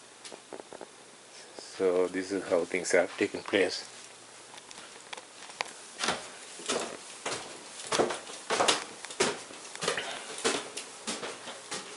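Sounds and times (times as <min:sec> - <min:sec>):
footsteps on staircase: 0:04.8 - 0:11.9.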